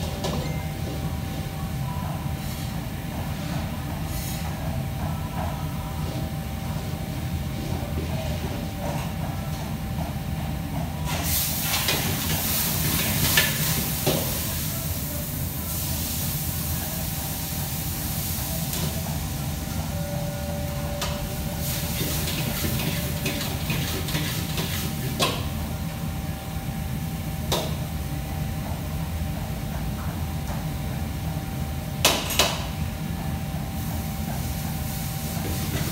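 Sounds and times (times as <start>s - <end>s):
utensils and steel pans clinking: 21.9s - 25.3s.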